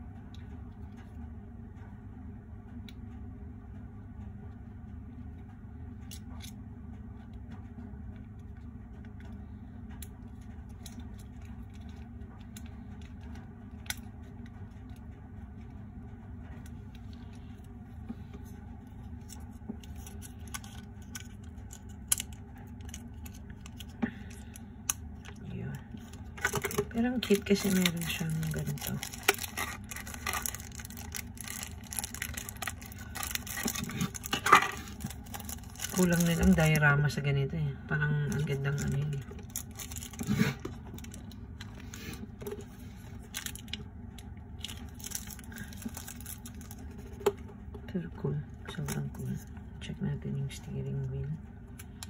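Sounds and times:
steady low hum: 0:00.0 - 0:52.0
packaging being handled: 0:19.0 - 0:36.8, 0:38.3 - 0:43.8, 0:44.6 - 0:47.4
plastic bag crinkling: 0:19.0 - 0:36.8, 0:38.3 - 0:43.8, 0:44.6 - 0:47.2.

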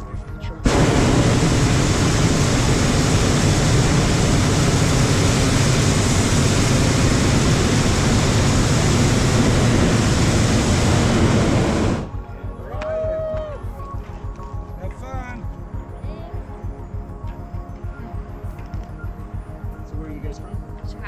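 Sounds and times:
propane burner blast: 0:00.6 - 0:12.2.

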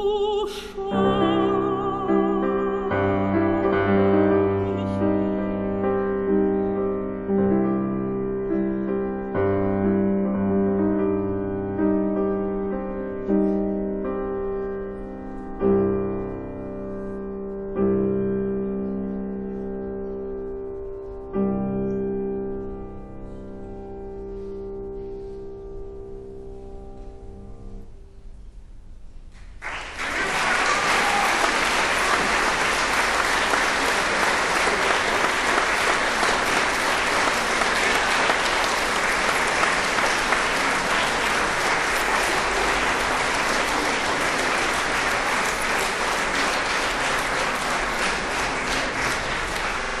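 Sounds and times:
audience applause: 0:29.6 - 0:50.0.

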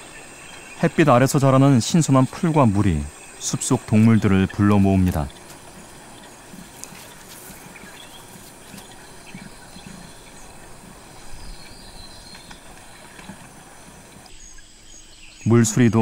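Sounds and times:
steady faint hiss: 0:00.0 - 0:16.0
low animal sounds: 0:03.4 - 0:14.3
soft ticks and knocks: 0:05.0 - 0:14.3.

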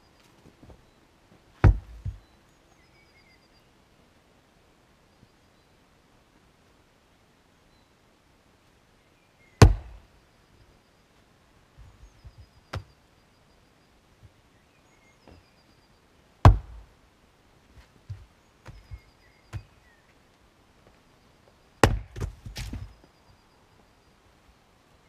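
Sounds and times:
axe chopping firewood: 0:01.6 - 0:02.2, 0:09.6 - 0:10.0, 0:16.4 - 0:16.9, 0:21.8 - 0:22.9.

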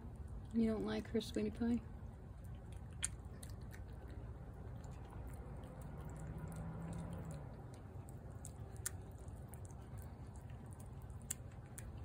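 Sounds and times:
cat chewing and lapping food: 0:00.0 - 0:12.0
low background rumble: 0:00.0 - 0:12.0.

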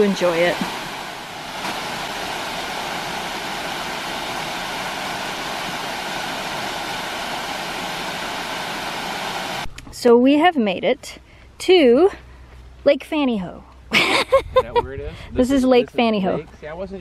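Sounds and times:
waterfall rushing water: 0:00.0 - 0:09.7.

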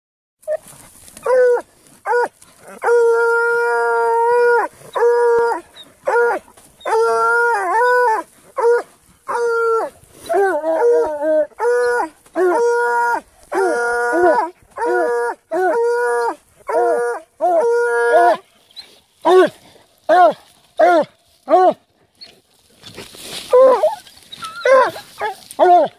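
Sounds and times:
hounds yelping barks: 0:00.5 - 0:22.4, 0:23.4 - 0:25.9
hounds baying: 0:00.5 - 0:25.9.

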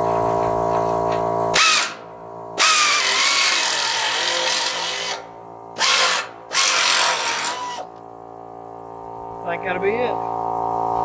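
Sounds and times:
power tool cutting metal sheet: 0:01.6 - 0:02.0, 0:02.6 - 0:05.2, 0:05.8 - 0:07.9.

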